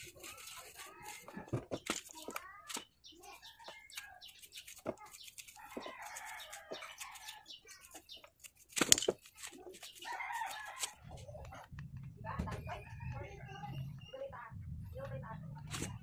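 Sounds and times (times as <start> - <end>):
brush scrubbing a gear: 0.0 - 2.2, 3.4 - 11.0.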